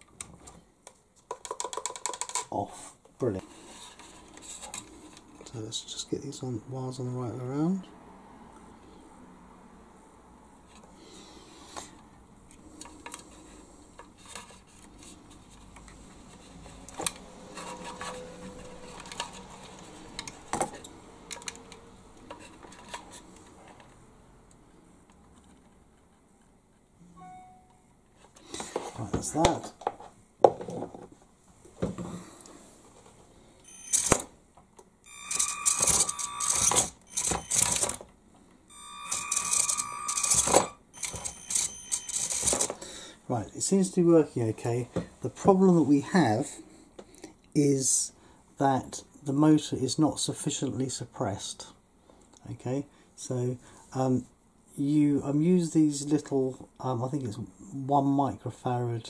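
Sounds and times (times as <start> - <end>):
small electric motor whine: 35.1 - 38.0, 38.7 - 42.0.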